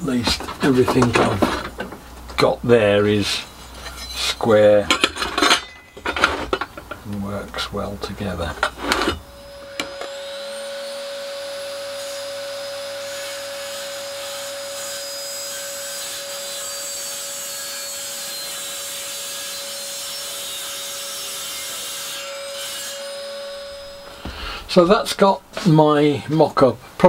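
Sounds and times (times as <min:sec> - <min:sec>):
mitre saw motor whine: 0:09.2 - 0:15.1, 0:22.2 - 0:24.9.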